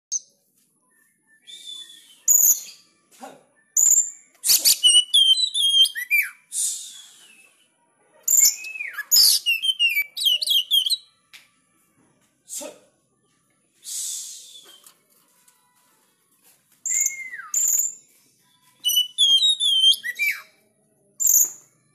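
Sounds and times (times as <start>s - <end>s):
songbird singing: 18.6s - 20.6s.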